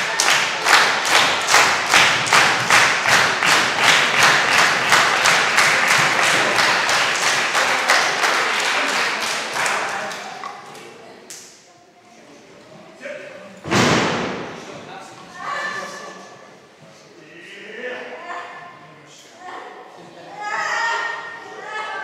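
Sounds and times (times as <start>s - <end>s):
crowd clapping in rhythm: 0.0s - 11.5s.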